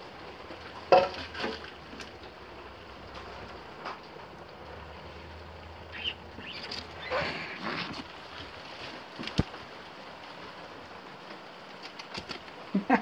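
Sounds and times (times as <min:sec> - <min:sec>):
rustling in dry debris: 0:06.4 - 0:12.6.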